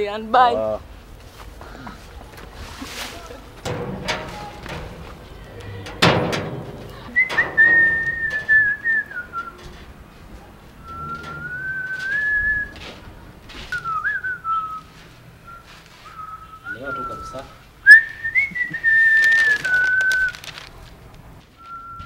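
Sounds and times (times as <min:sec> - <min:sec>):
sharp bang: 0:03.6 - 0:09.8
person whistling a slow tune: 0:07.2 - 0:09.6, 0:10.8 - 0:12.8, 0:13.7 - 0:20.4, 0:21.6 - 0:22.0.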